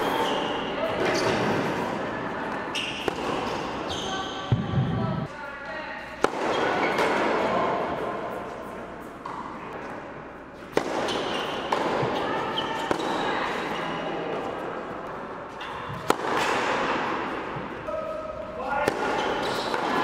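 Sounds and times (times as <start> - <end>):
tennis ball struck and bouncing: 3.0 - 3.6, 6.2 - 7.3, 10.6 - 12.2, 15.6 - 17.3.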